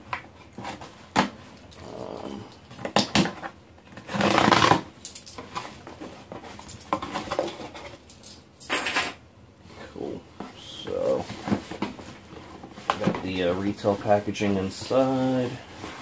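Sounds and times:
cardboard rustling: 0.0 - 8.1, 9.8 - 16.0
tape tearing from cardboard: 4.0 - 4.9.

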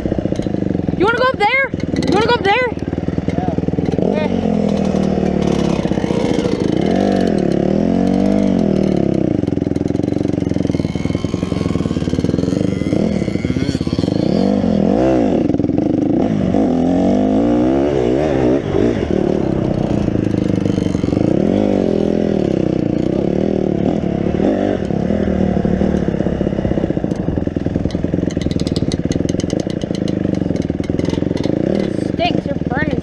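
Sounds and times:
dirt bike engine revving: 0.0 - 33.0
rapid clicking: 27.1 - 32.0.

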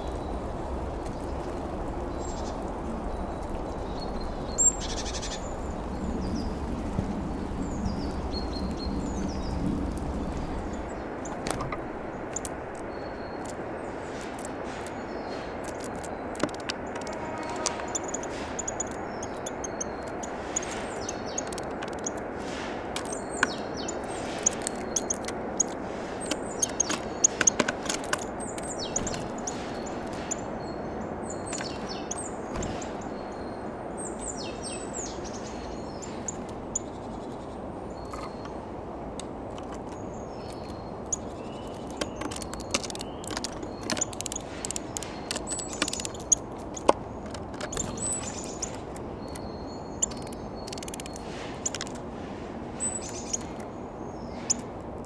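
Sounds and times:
songbirds chirping: 0.0 - 55.0
sharp taps and clicks: 14.2 - 22.2, 41.6 - 52.0.

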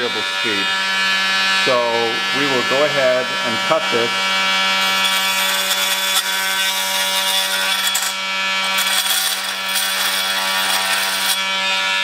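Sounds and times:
oscillating multi-tool buzzing: 0.0 - 12.0
blade rasping through plastic: 4.8 - 11.6.

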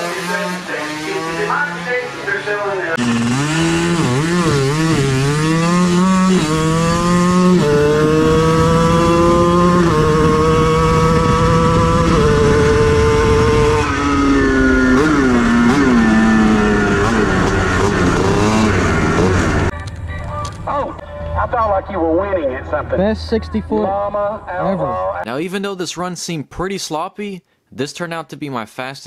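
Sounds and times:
two-stroke minibike engine revving: 0.0 - 19.7.

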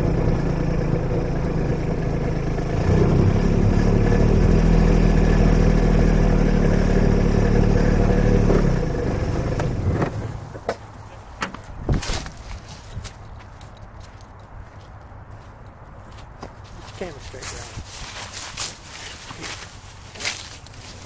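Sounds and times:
vehicle engine running: 0.0 - 10.6.

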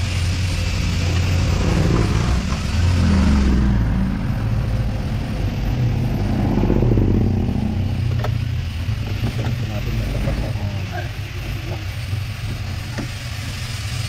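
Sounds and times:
hiss: 0.0 - 14.0
vehicle engine rumble: 0.0 - 14.0.

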